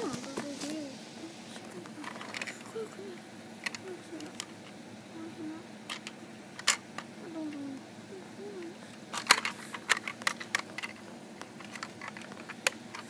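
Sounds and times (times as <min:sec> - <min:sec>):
faint voice: 0:00.0 - 0:04.4, 0:05.1 - 0:05.7, 0:07.2 - 0:09.0.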